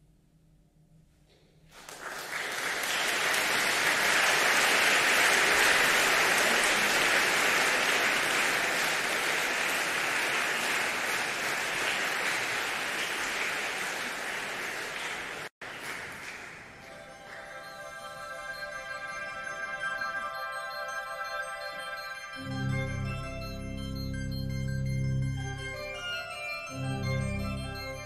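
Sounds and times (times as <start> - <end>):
audience applauding: 1.7 - 23.6.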